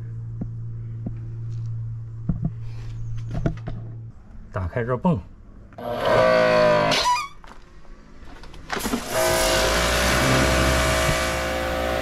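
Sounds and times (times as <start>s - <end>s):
pressure washer motor running: 8.7s - 12.0s.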